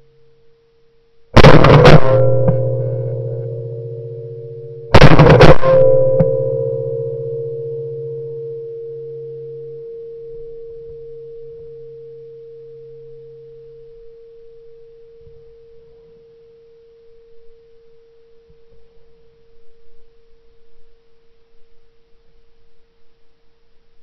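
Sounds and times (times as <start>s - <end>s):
shotgun metallic ringing hum: 1.4s - 16.3s.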